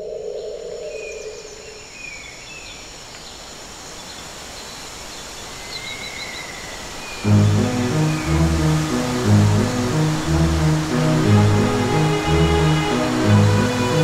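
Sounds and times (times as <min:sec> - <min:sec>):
outdoor background hiss: 0:00.0 - 0:14.0
background music: 0:07.2 - 0:14.0.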